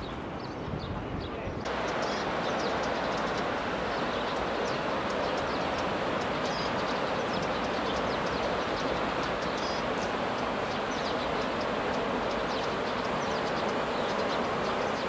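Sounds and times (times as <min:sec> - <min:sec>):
river rushing: 0:01.6 - 0:15.0.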